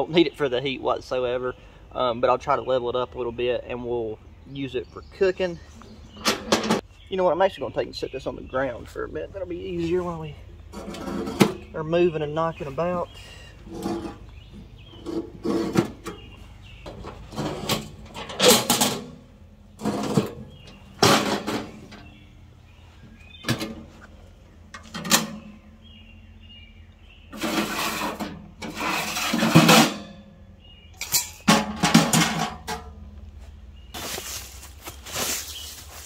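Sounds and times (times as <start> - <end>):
metal clanks and rattles: 6.2 - 6.8, 10.7 - 11.8, 13.7 - 22.2, 23.4 - 24.1, 24.7 - 25.7, 27.3 - 33.2
metal scraping: 10.7 - 13.0, 13.6 - 16.3, 16.9 - 22.2, 27.3 - 30.3.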